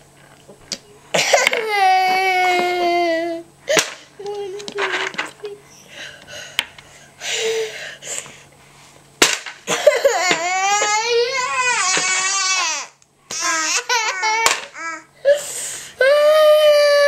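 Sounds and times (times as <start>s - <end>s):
young child crying: 1.4s - 3.5s, 9.8s - 15.4s, 16.0s - 17.0s.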